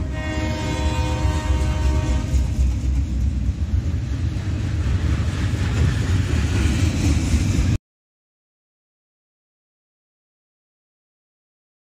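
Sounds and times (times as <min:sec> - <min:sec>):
freight train rumbling on rails: 0:00.0 - 0:07.8.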